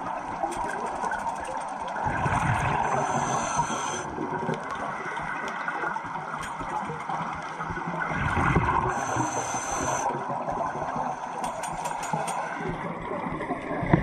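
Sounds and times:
gurgling exhaled bubbles: 0:01.1 - 0:11.2
diver breathing through regulator: 0:02.6 - 0:04.1, 0:08.9 - 0:10.2.

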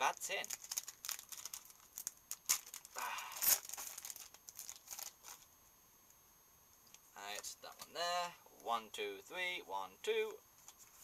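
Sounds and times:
foil wrapper crinkling and tearing: 0:00.0 - 0:05.5.

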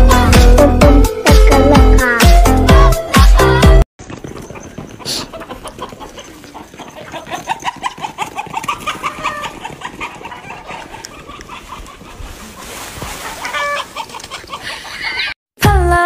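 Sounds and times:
chickens clucking: 0:04.0 - 0:15.4.

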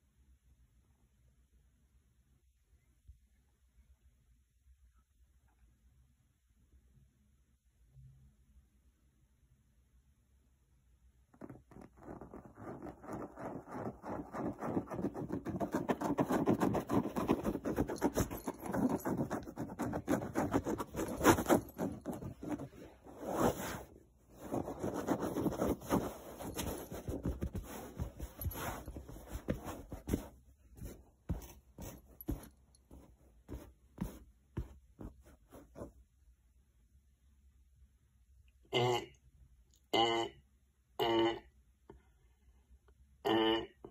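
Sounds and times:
fingers scratching upholstery: 0:11.4 - 0:35.9.

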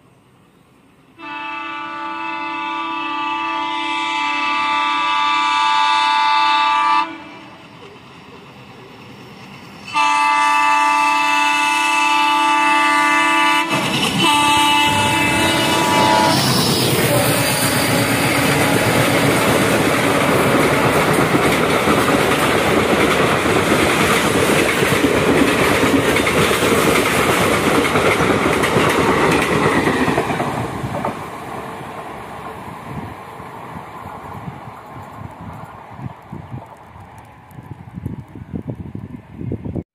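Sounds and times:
diesel locomotive thundering past: 0:01.1 - 0:39.8
train horn blasts: 0:01.2 - 0:07.6, 0:09.9 - 0:19.3
train wheels clattering on rail joints: 0:13.6 - 0:32.1.

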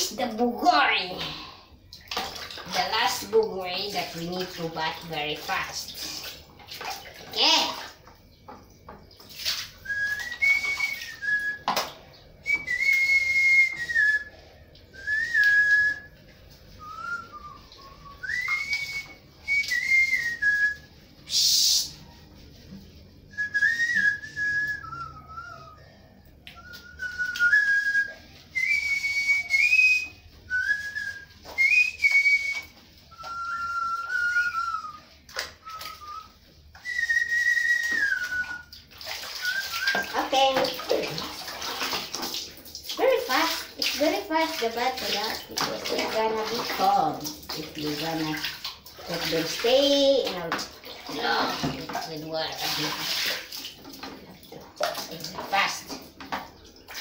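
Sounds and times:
water splashing and dripping: 0:00.0 - 0:25.2, 0:26.3 - 0:57.0
person whistling a tune: 0:09.8 - 0:11.7, 0:12.4 - 0:16.1, 0:16.8 - 0:21.9, 0:23.3 - 0:38.7.

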